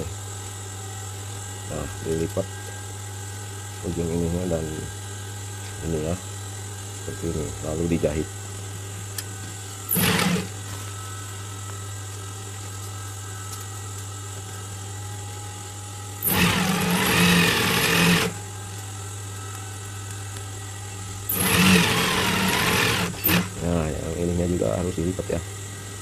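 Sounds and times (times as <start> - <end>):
sewing machine stitching: 9.9 - 10.5, 16.2 - 18.4, 21.3 - 23.5
sewing machine motor humming: 9.9 - 10.6, 16.2 - 18.4, 21.3 - 23.6.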